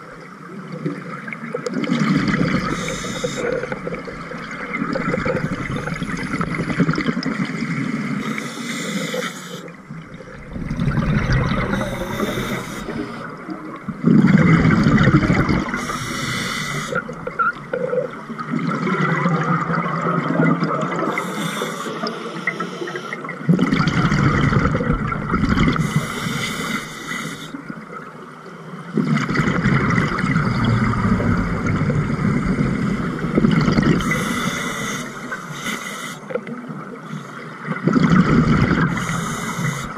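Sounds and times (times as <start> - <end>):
exhaled bubbles rushing underwater: 0.0 - 8.5, 9.6 - 21.4, 22.0 - 35.5, 36.4 - 39.9
regulator inhale hiss: 2.6 - 3.8, 8.2 - 9.7, 11.6 - 13.3, 15.7 - 17.0, 21.1 - 23.3, 25.8 - 27.6, 34.0 - 36.4, 37.0 - 37.6, 38.9 - 39.9.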